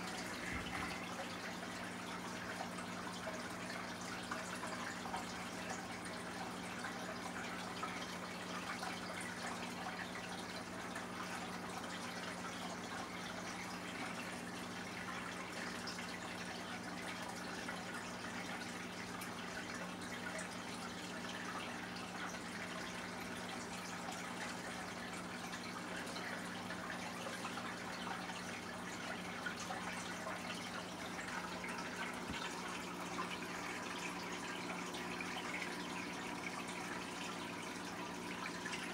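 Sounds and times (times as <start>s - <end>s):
low constant hum: 0.0s - 38.9s
water trickling and splashing: 0.0s - 38.9s.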